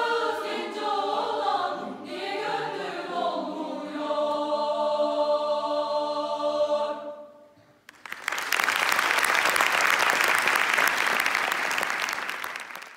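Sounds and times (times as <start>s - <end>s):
choir singing a chord: 0.0s - 7.6s
audience applause: 7.9s - 12.9s.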